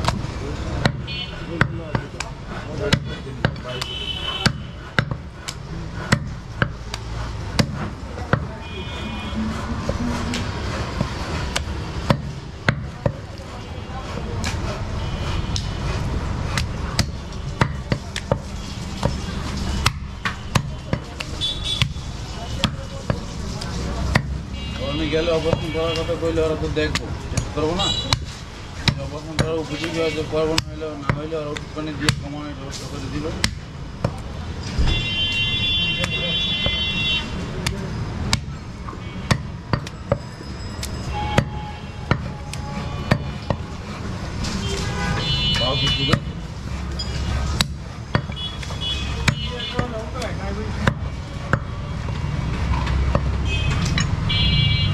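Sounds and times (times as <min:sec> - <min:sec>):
cleaver chopping on wooden block: 0:00.0 - 0:08.5, 0:11.0 - 0:13.2, 0:16.5 - 0:19.2, 0:19.8 - 0:22.0, 0:24.1 - 0:24.4, 0:26.8 - 0:32.3, 0:33.4 - 0:34.2, 0:37.6 - 0:38.6, 0:39.2 - 0:40.3, 0:41.3 - 0:42.4, 0:45.5 - 0:46.4, 0:47.5 - 0:51.8, 0:53.0 - 0:53.4
high steady tone: 0:08.6 - 0:11.0.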